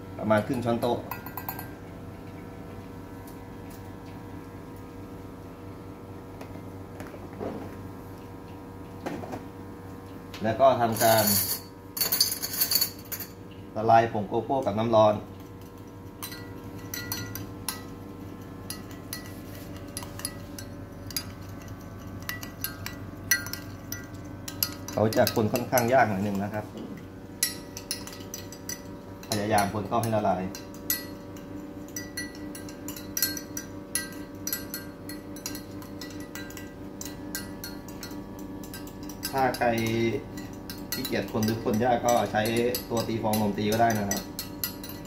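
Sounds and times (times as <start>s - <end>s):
cafe equipment hum: 0.0s - 45.0s
spoon clinking against glass: 0.5s - 1.8s, 10.9s - 13.4s, 15.6s - 45.0s.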